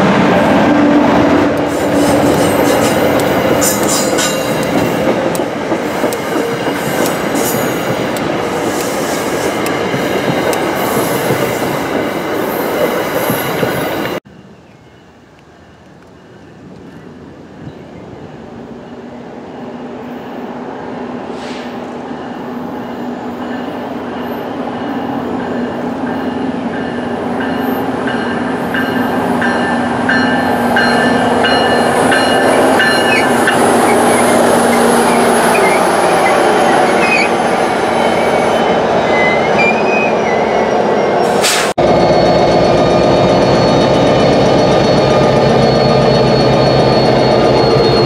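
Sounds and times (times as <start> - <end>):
diesel locomotive passing: 0.0 - 48.0
high wheel squeals: 30.8 - 48.0.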